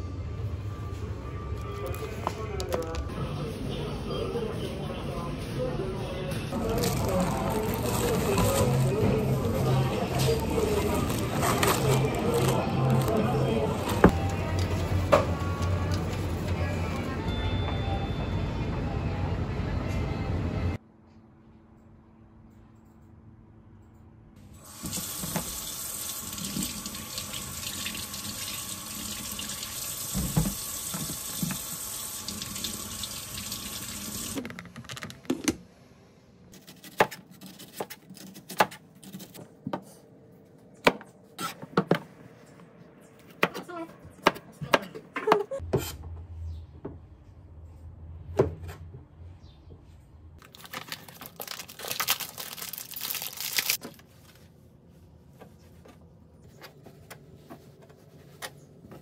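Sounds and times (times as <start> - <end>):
plastic package crinkling: 6.6 - 9.0, 10.3 - 13.3, 50.4 - 54.1
water running from tap into sink: 24.6 - 34.4.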